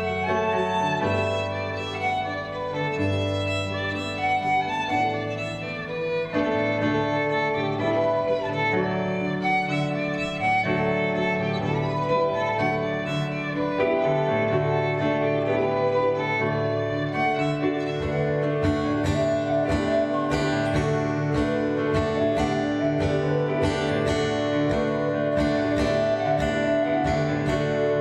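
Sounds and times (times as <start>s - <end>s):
fiddle long held notes: 0.0s - 28.0s
strummed acoustic guitar: 14.8s - 28.0s.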